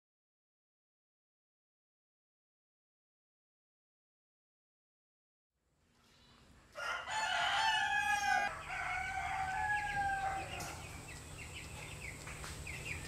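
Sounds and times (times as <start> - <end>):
rooster crowing: 6.8 - 11.0
chicks peeping: 6.8 - 13.0.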